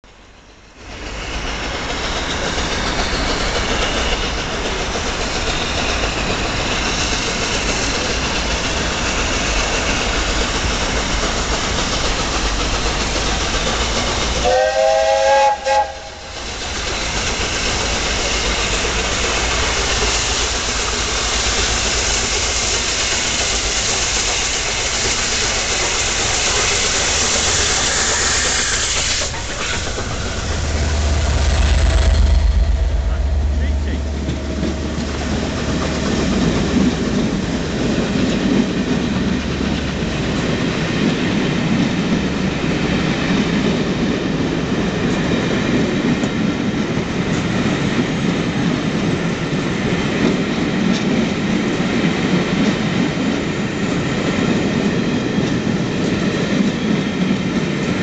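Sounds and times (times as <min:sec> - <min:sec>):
steam locomotive rushing: 0:00.0 - 0:58.0
multi-tone steam whistle: 0:14.4 - 0:16.5.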